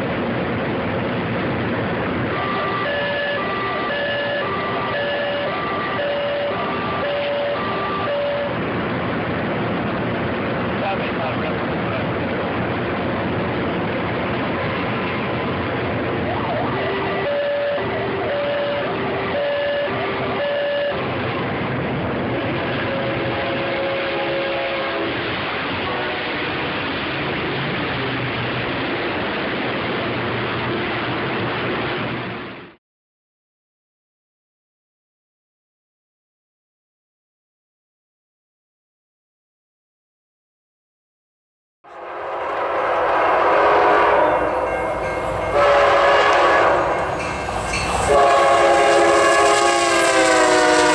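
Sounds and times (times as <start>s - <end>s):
freight train wheels rolling on rail: 0.0s - 32.8s, 41.9s - 50.9s
locomotive air horn blasts: 2.3s - 8.6s, 16.7s - 21.1s, 22.7s - 25.2s, 25.8s - 26.7s, 42.6s - 47.2s, 48.0s - 50.9s.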